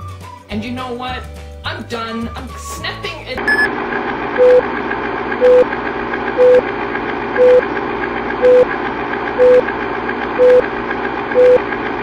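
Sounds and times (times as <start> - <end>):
short mid-pitched beeps: 3.5 - 3.7, 6.4 - 6.6, 7.4 - 7.6, 8.4 - 8.6, 9.4 - 9.6, 11.4 - 11.6.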